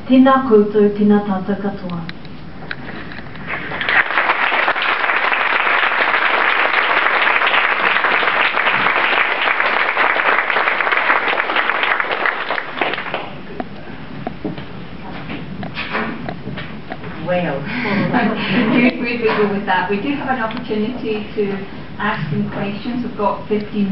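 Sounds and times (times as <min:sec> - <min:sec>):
audience applauding: 0:03.4 - 0:13.5.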